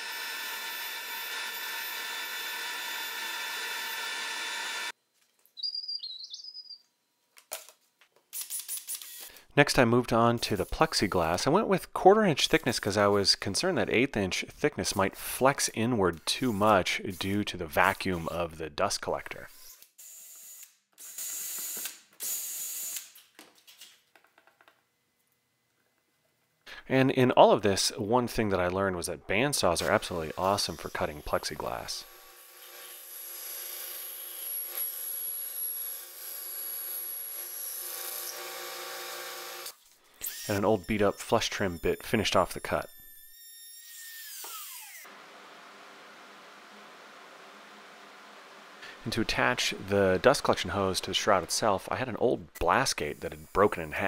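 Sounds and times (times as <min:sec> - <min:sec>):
cordless drill cutting plastic: 0:00.0 - 0:05.0, 0:19.6 - 0:23.1, 0:32.0 - 0:42.0, 0:42.6 - 0:45.2
bandsaw cutting plastic sheet: 0:29.7 - 0:36.2.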